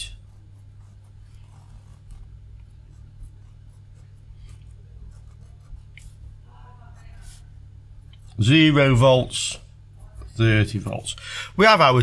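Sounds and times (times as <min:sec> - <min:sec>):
pen scratching on paper: 0:00.0 - 0:06.2, 0:06.9 - 0:07.5
steady low hum: 0:00.0 - 0:12.0.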